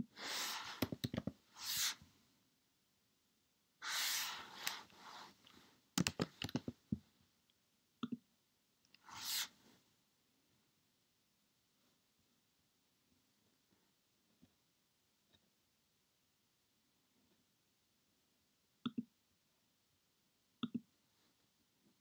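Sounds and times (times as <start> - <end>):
mouse clicking: 6.0 - 6.7
keyboard keys clicking: 6.0 - 6.8.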